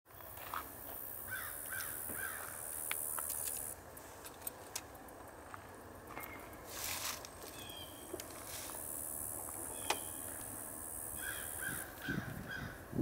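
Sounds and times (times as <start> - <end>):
high steady hiss: 0.2 - 12.1
crow cawing: 1.3 - 2.6, 11.1 - 12.8.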